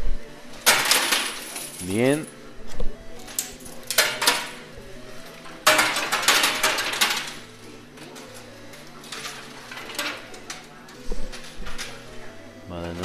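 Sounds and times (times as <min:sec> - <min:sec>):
coins clattering in machine: 0:00.6 - 0:02.4, 0:03.2 - 0:04.7, 0:05.4 - 0:12.1, 0:12.7 - 0:13.0.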